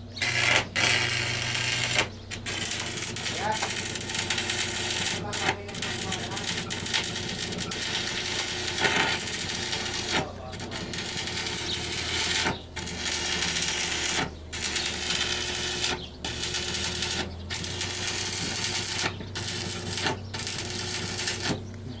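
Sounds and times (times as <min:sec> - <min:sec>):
arc welding: 0:00.0 - 0:21.8.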